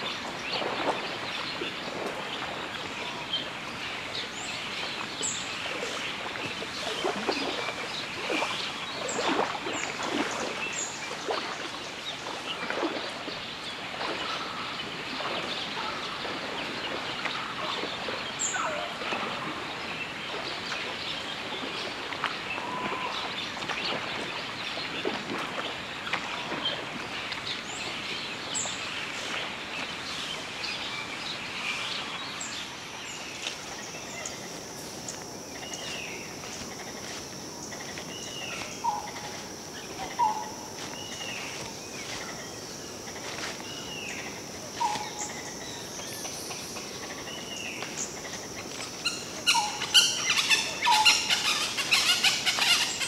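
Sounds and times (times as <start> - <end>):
wild birds calling: 33.1 - 53.0
high insect drone: 33.4 - 53.0.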